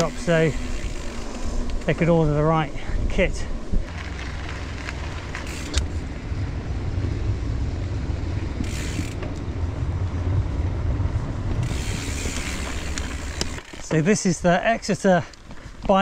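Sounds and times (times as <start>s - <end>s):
bike tyres rumbling on planks: 8.4s - 14.2s.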